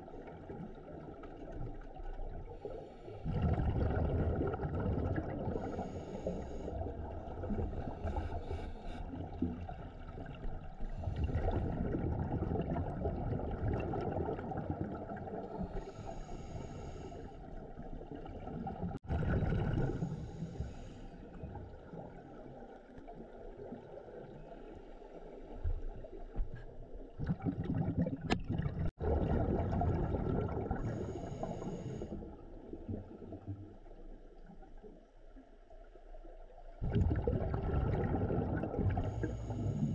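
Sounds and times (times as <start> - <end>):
exhaled bubbles hissing underwater: 2.2 - 22.6, 27.2 - 33.4, 36.8 - 39.9
low bubbling rumble: 3.2 - 15.7, 17.4 - 20.6, 25.7 - 34.8, 36.6 - 39.9.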